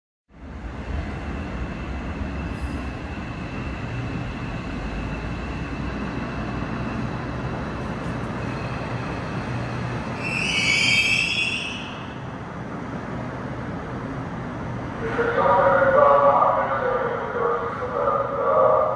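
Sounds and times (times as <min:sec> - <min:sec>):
subway train rumbling: 0:00.3 - 0:18.9
brake squeal: 0:10.2 - 0:11.9.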